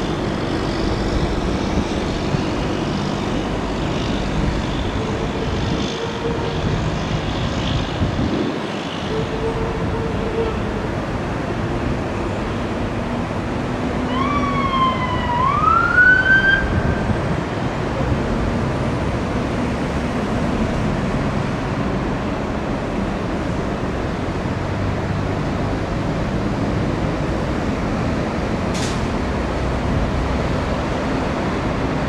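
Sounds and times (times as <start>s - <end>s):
freeway traffic: 0.0s - 32.0s
police siren sweep: 14.0s - 17.3s.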